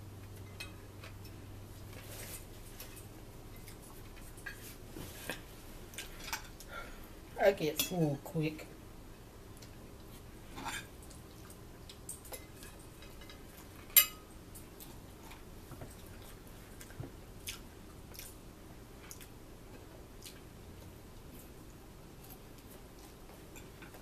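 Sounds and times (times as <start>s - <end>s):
soft chewing: 0.2s - 7.2s, 9.4s - 13.9s, 14.5s - 24.0s
fork clinking on plate: 13.9s - 14.3s.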